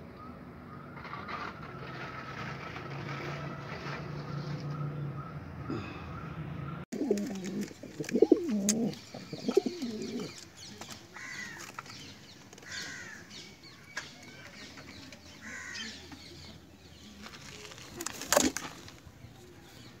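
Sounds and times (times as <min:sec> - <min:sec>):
pigeons cooing: 0:07.0 - 0:10.4.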